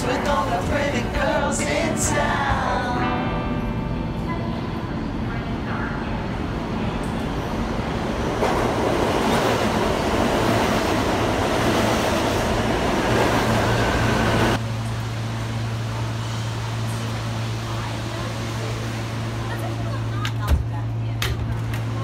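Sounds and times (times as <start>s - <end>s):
train wheels rumbling on rails: 6.1s - 22.0s.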